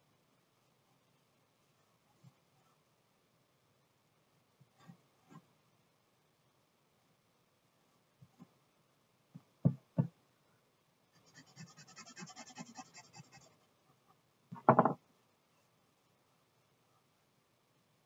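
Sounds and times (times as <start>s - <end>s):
drawing stick rubbing paper: 11.2s - 13.6s
sharp knocks on table: 14.5s - 15.0s.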